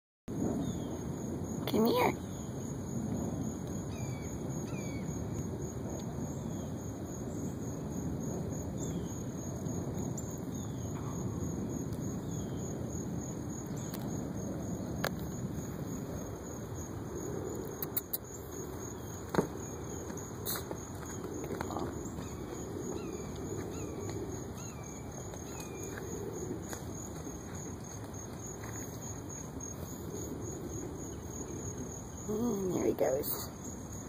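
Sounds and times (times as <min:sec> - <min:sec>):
crickets trilling: 0:00.3 - 0:34.0
sharp clicks: 0:17.7 - 0:18.2.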